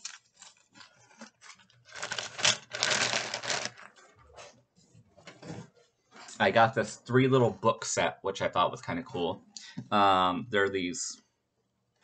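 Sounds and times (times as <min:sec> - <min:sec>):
rustling clatter of objects: 0:00.0 - 0:06.4.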